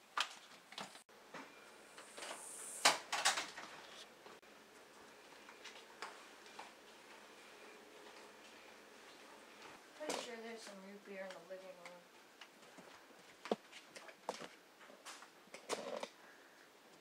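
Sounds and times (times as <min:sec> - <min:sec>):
faint footsteps: 0:03.6 - 0:15.2.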